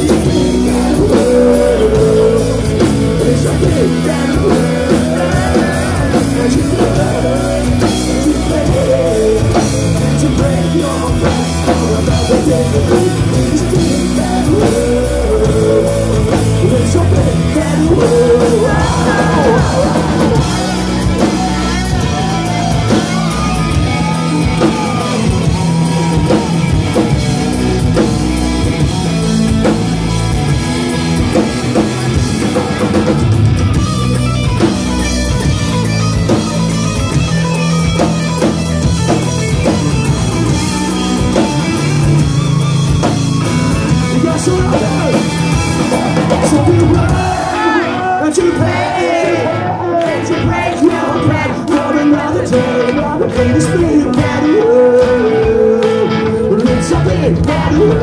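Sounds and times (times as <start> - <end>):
person singing: 0.0 - 28.0, 44.0 - 58.0
distorted electric guitars: 0.0 - 58.0
punk rock band playing live: 0.0 - 58.0.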